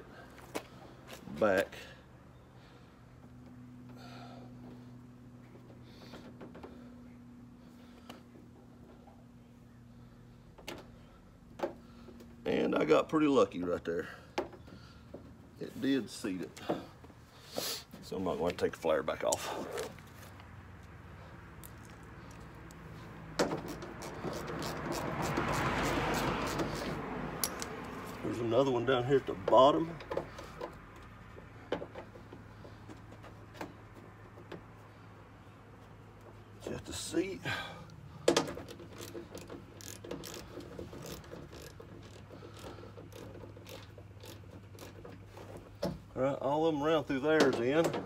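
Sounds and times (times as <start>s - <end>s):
screwdriver clicking and scraping: 23.6s - 27.7s, 38.6s - 45.3s.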